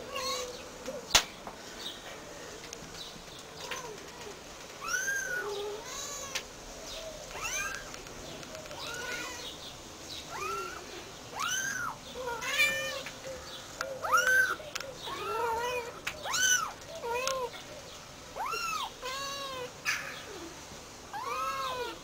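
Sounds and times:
kittens mewing: 4.8s - 6.4s, 10.3s - 13.2s, 14.0s - 17.6s, 18.4s - 20.5s.

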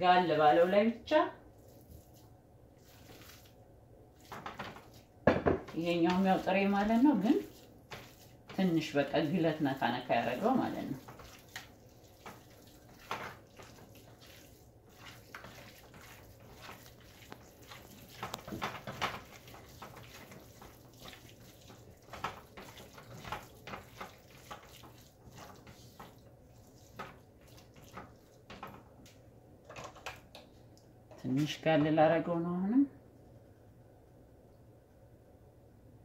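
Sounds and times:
wet squishing of raw meat: 1.5s - 5.1s, 6.3s - 8.8s, 10.3s - 28.7s.

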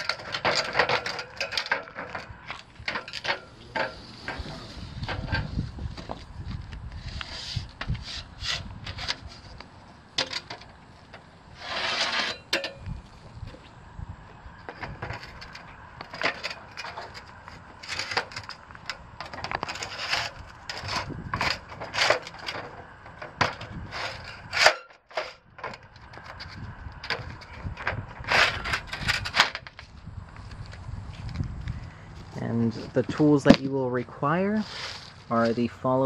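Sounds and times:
tubes scraping: 0.0s - 6.3s, 11.5s - 12.6s.

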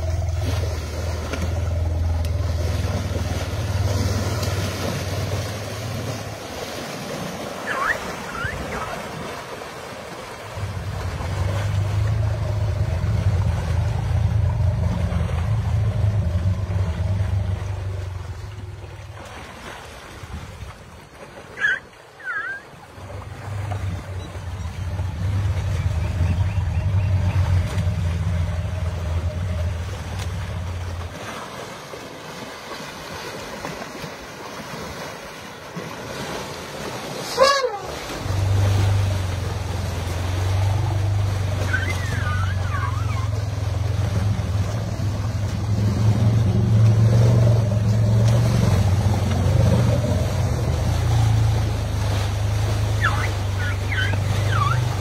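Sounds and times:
river water rushing and splashing: 0.0s - 55.0s.

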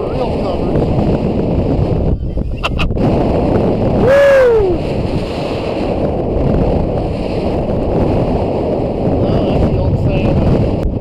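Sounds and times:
wind and water rushing: 0.0s - 11.0s
person whooping: 4.0s - 4.8s.

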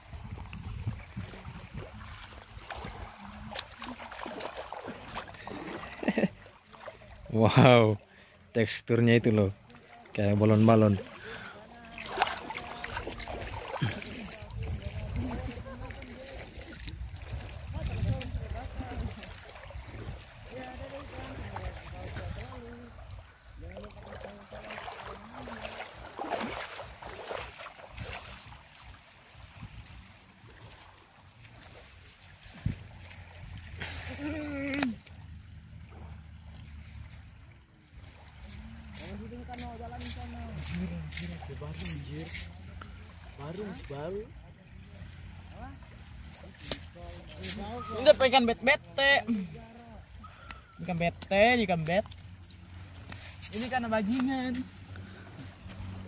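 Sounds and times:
wind rumble on microphone: 0.0s - 3.0s, 13.0s - 23.7s
seawater washing at shore: 0.0s - 56.0s.

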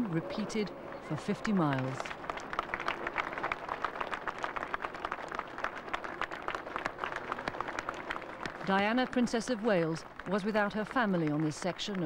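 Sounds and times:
crowd applauding: 1.0s - 12.0s.

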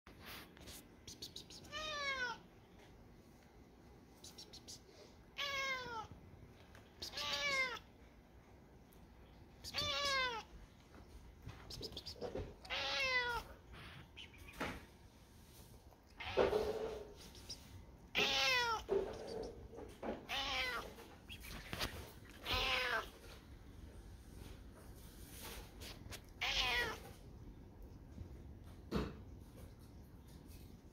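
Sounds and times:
cat meowing: 1.6s - 2.5s, 5.4s - 6.2s, 7.0s - 7.9s, 9.6s - 10.5s, 12.6s - 14.6s, 18.1s - 19.4s, 20.1s - 23.2s, 26.1s - 27.2s.

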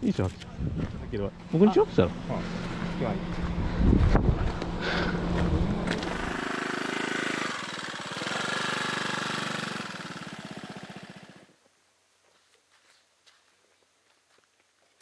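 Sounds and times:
scooter engine running: 1.3s - 11.5s.

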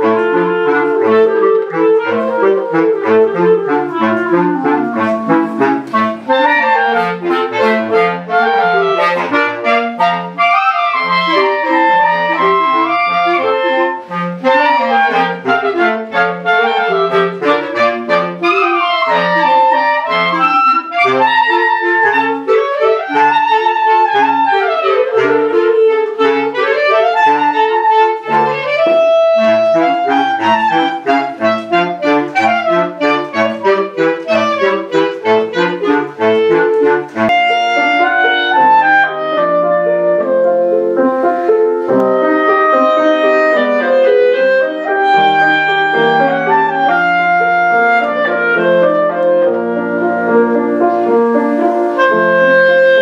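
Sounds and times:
clarinet ensemble playing: 0.0s - 53.0s.

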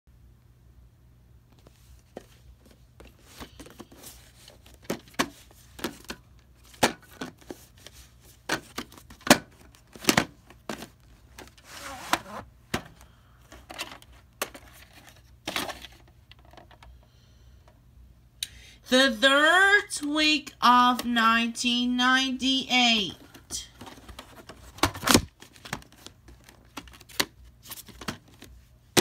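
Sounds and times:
cardboard rustling: 1.5s - 16.6s, 23.3s - 29.0s.

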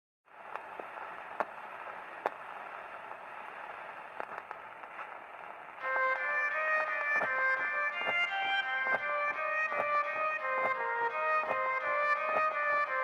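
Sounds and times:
clicks and crackles: 0.3s - 5.8s, 7.0s - 9.1s
muffled hiss: 0.3s - 13.0s
music with high sustained tones: 5.8s - 13.0s.

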